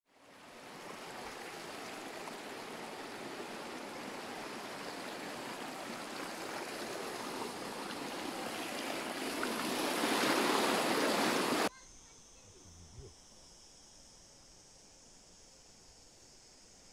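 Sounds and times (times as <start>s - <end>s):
water rushing over rocks: 0.3s - 11.7s.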